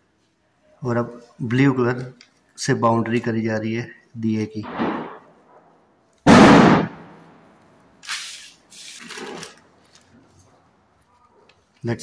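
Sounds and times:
loud bang: 0:04.6 - 0:07.5.

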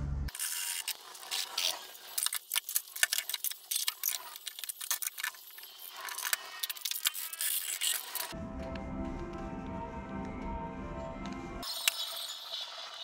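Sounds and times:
music with a beat: 0:08.4 - 0:11.6.

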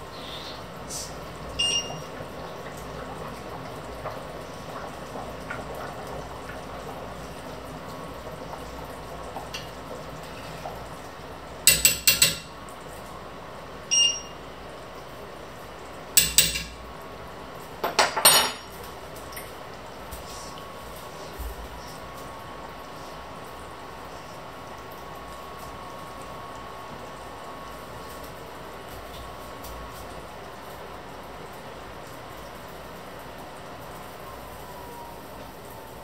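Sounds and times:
sauce simmering: 0:00.0 - 0:11.7
metal spoon clinking against pot: 0:11.7 - 0:12.5, 0:16.2 - 0:16.8.

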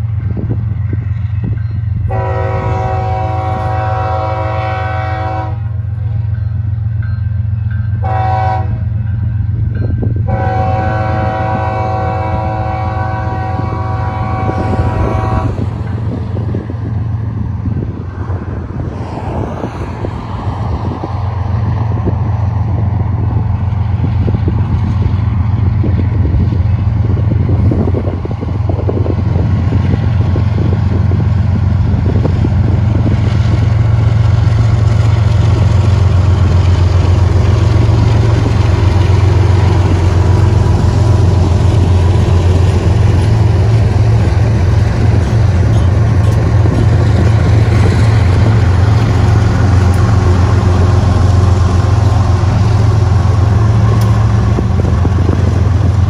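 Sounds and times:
deep locomotive engine drone: 0:00.0 - 0:56.0
train horn blast: 0:02.0 - 0:05.9, 0:08.0 - 0:08.9, 0:10.2 - 0:16.0.

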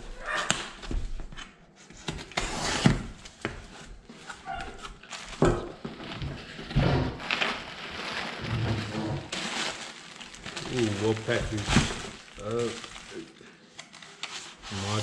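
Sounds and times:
cardboard scraping and tearing: 0:02.2 - 0:13.2, 0:14.4 - 0:15.0.

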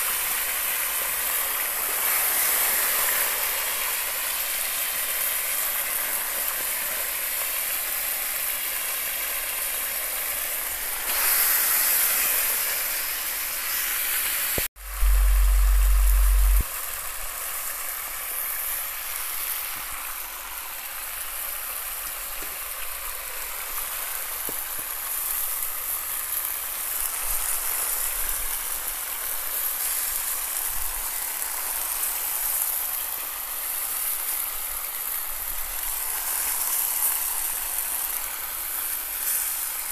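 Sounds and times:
meat sizzling in a pan: 0:00.0 - 0:39.9
loud low rumble: 0:14.8 - 0:16.6.

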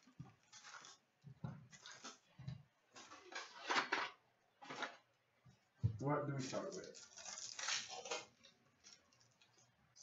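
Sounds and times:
plastic wrap crinkling: 0:00.0 - 0:03.8, 0:06.3 - 0:10.0.

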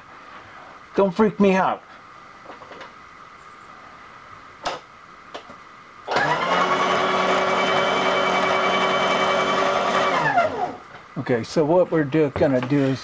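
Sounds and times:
milling machine motor whine: 0:06.1 - 0:10.8.

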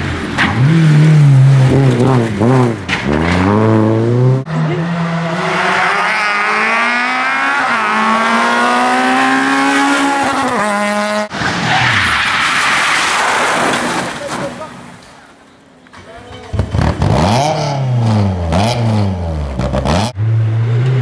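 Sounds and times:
rally car engine at full throttle: 0:00.0 - 0:11.7.

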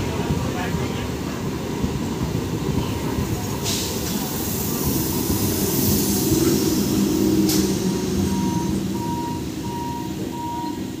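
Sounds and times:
train wheels rumbling on rail: 0:00.0 - 0:11.0
high electronic beep: 0:08.3 - 0:10.8.

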